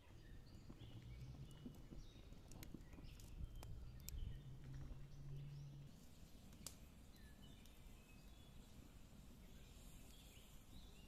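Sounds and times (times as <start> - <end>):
small birds chirping: 0.0 - 11.0
wood fire crackling: 0.0 - 11.0
fire pops: 1.4 - 4.8, 6.4 - 6.9.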